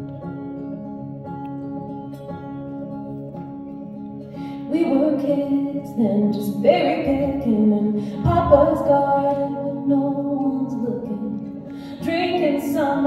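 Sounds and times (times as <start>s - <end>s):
acoustic guitar: 0.0s - 13.0s
woman singing: 4.6s - 13.0s.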